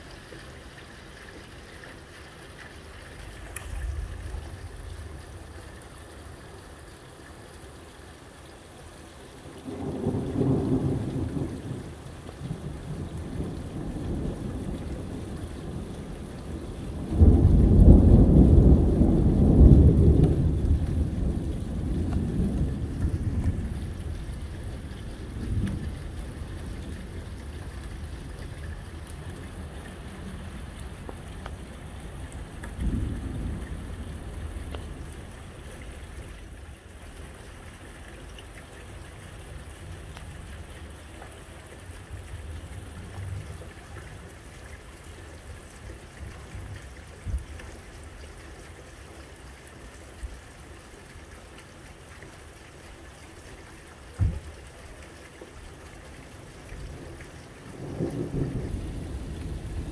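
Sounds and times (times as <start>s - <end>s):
steady rain hiss: 0.0s - 59.9s
thunder rumble: 3.6s - 5.6s, 9.7s - 36.3s, 57.7s - 59.9s.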